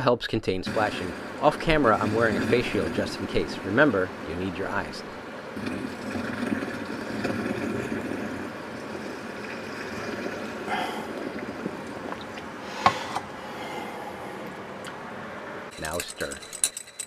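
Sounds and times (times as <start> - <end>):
liquid bubbling: 0.6 - 15.1
water pouring through funnel: 1.0 - 12.6.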